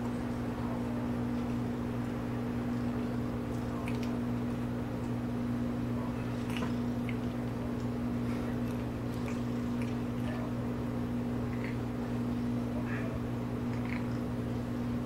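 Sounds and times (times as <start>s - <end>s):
cat licking wet clicks: 3.4s - 4.3s.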